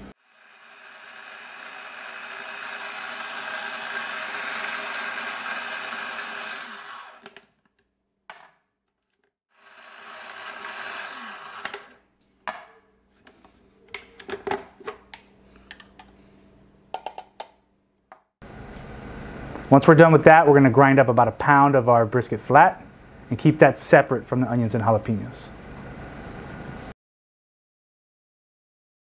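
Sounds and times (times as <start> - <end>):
food processor chopping: 0.4 - 7.5, 9.6 - 12.0
plastic clicks and knocks: 16.9 - 18.2.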